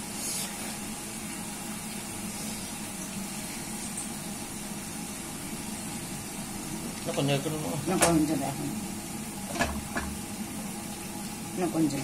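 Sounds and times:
food hissing in clay pot: 0.0 - 1.2, 2.0 - 5.1.

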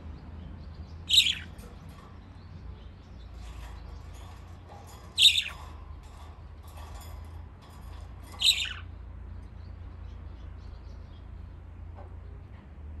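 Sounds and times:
budgerigars chirping: 1.0 - 2.0, 4.3 - 5.7, 8.3 - 8.8.

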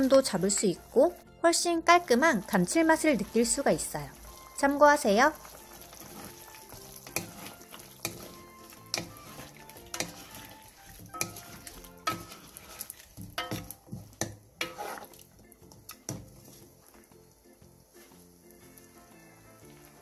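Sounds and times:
sauce sizzling: 0.0 - 20.0
wooden spatulas scraping a pan: 5.3 - 15.3, 16.0 - 16.9.

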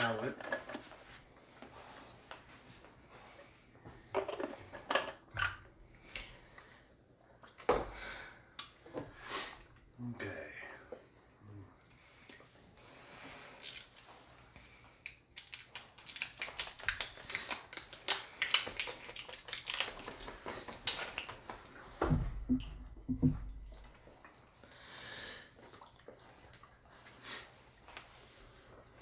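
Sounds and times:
plastic wrap crinkling: 15.3 - 21.4.

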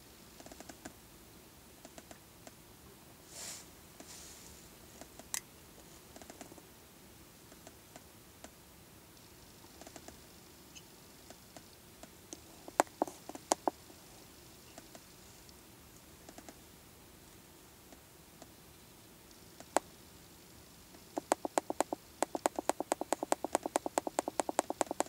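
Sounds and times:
faint scattered clicks: 16.2 - 16.6, 20.9 - 25.0
sharp clicks: 21.2 - 25.0.

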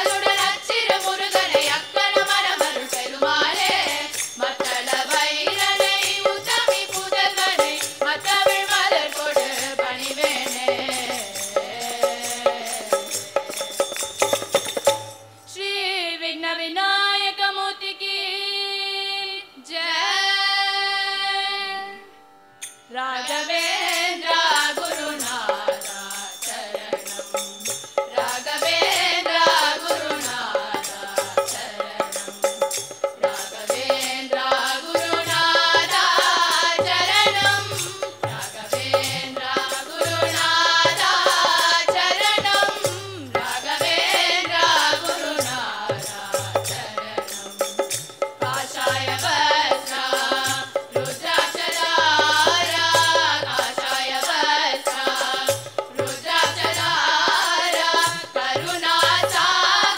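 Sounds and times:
children singing in unison: 0.0 - 13.0, 23.2 - 27.4, 28.1 - 32.4, 33.2 - 47.2, 48.5 - 59.9
hand drum beat: 0.0 - 15.2, 26.6 - 59.9.

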